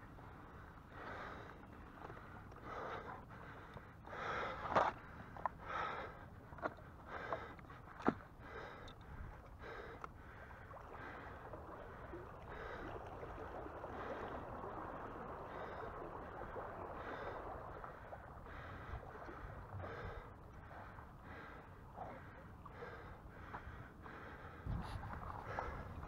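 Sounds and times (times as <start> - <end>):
water sloshing around raft: 0.0 - 26.0
person breathing heavily: 2.6 - 6.3, 18.5 - 25.9.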